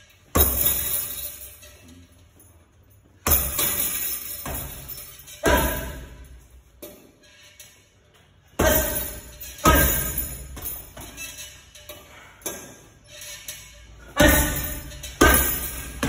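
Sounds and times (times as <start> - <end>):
punches thudding on heavy bag: 0.4 - 0.9, 3.3 - 6.2, 8.6 - 11.1, 14.2 - 16.0
chain jingling: 0.4 - 6.7, 8.6 - 12.3, 13.0 - 16.0.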